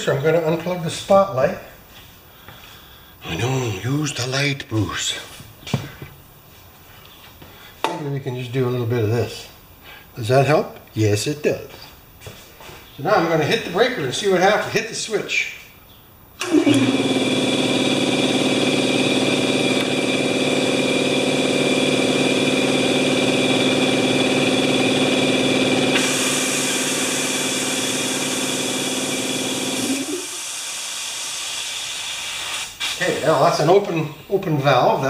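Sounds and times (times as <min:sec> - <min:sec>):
air compressor running: 0:16.4 - 0:32.9
air hissing from valve: 0:25.9 - 0:29.1, 0:29.8 - 0:33.2.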